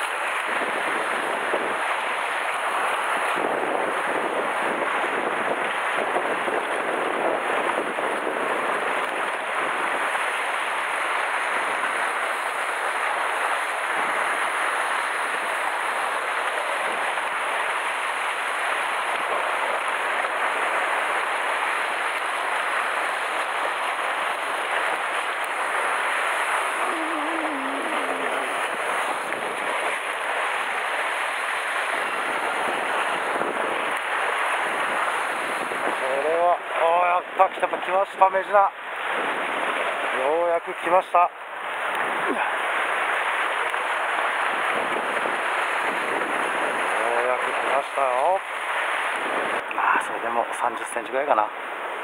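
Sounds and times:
sea surf breaking on rocks: 0.0 - 52.0.

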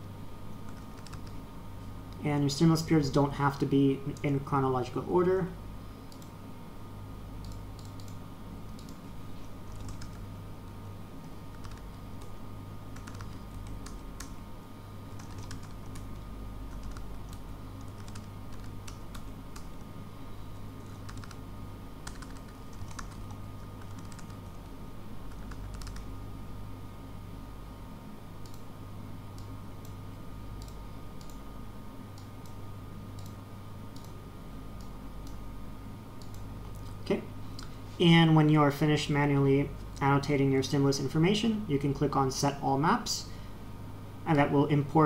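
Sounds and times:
steady low hum: 0.0 - 45.0
typing on computer keyboard: 0.7 - 1.4, 9.7 - 10.2, 11.5 - 12.3, 13.0 - 14.4, 15.2 - 16.1, 16.7 - 19.8, 20.9 - 21.4, 22.0 - 24.6, 25.3 - 26.1.

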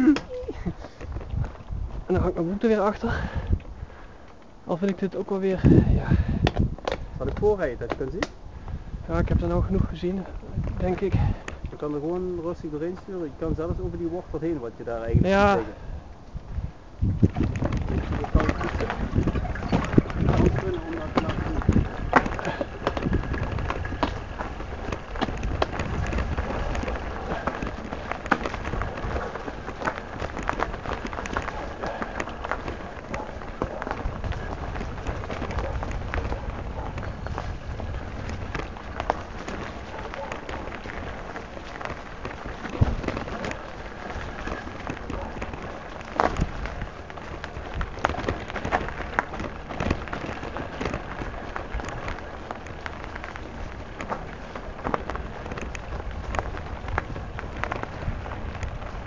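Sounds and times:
bike clicks and rattles: 0.0 - 59.0
tyres crackling over leaves: 0.0 - 59.0.

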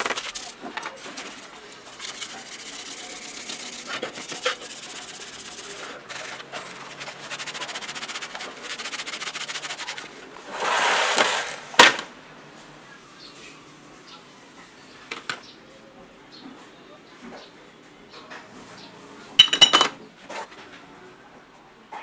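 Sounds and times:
scrubbing plastic in soapy water: 0.0 - 11.8
plastic tray scraping: 10.4 - 12.1.

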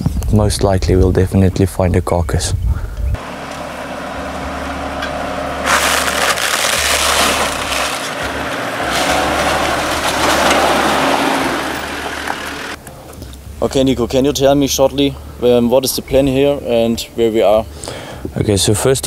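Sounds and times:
dry branches crackling and snapping: 4.8 - 12.8.

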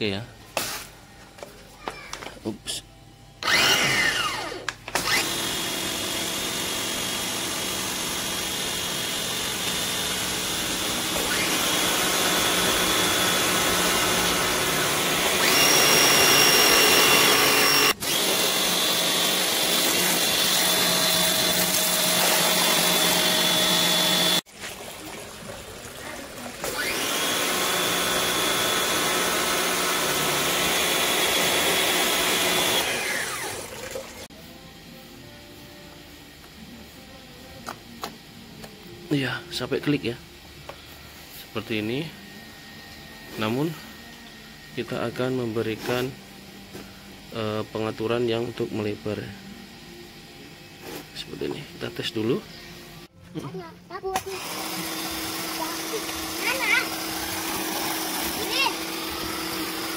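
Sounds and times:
pressure washer whine: 3.4 - 24.5, 26.0 - 34.3, 54.2 - 59.9.

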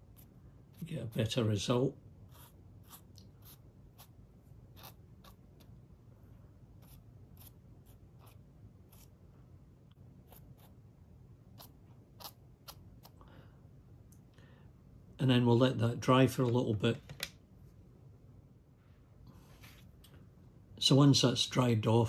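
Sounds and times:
paintbrush scratching on foam: 0.0 - 5.8, 6.8 - 9.2, 10.2 - 10.8, 11.4 - 13.2.

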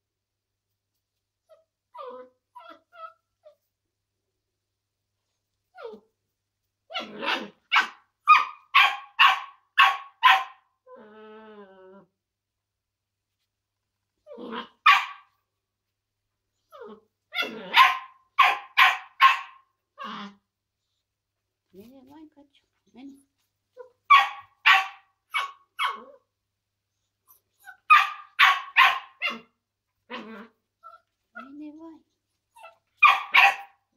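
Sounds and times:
puppy whining: 1.4 - 3.8, 5.4 - 6.3, 10.8 - 12.2, 16.5 - 21.0, 22.8 - 33.8
puppy barking: 6.9 - 10.7, 14.6 - 15.4, 17.3 - 19.7, 24.0 - 26.2, 27.6 - 30.3, 32.6 - 33.9.

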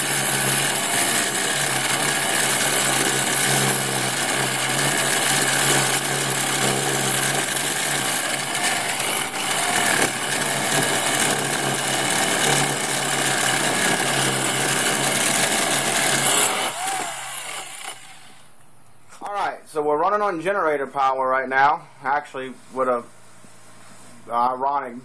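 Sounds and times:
core bit grinding through brick: 0.0 - 18.6
electric drill motor whine: 0.0 - 18.6.

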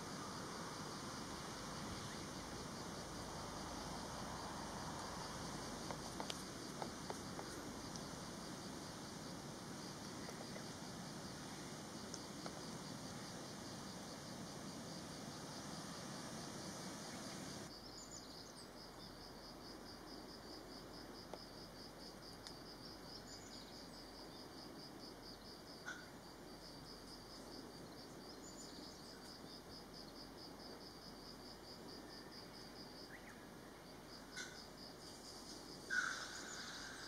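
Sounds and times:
insect trilling: 34.3 - 37.0.

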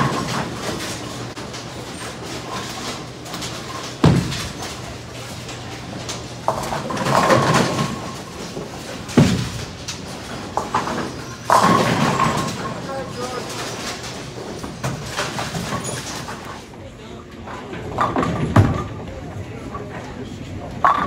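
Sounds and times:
bowling pins clattering: 0.0 - 16.8, 17.4 - 21.0
bowling ball thudding on wooden lane: 3.9 - 4.7.

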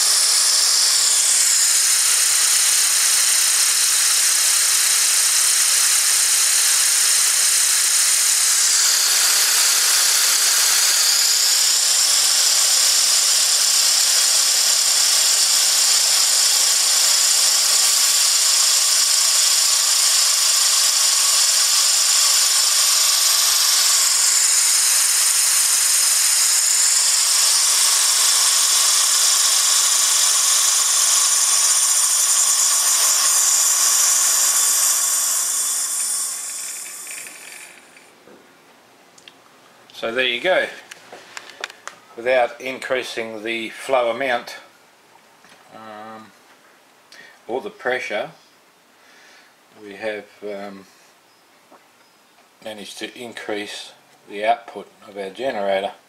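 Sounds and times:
compressed air hissing: 0.0 - 38.1.

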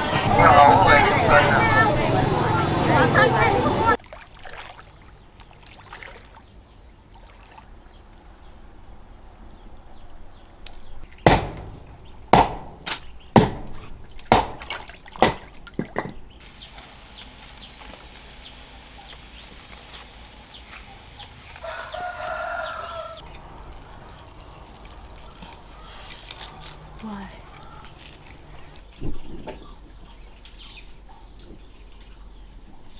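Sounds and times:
sharp chopping blows: 11.2 - 15.5.

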